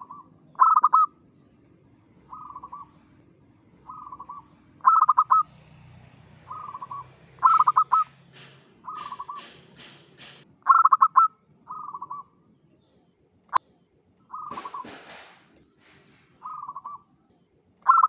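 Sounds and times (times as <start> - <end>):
dove cooing: 0.0 - 9.6, 10.6 - 12.4, 14.3 - 17.2
sharp click: 8.0 - 10.5.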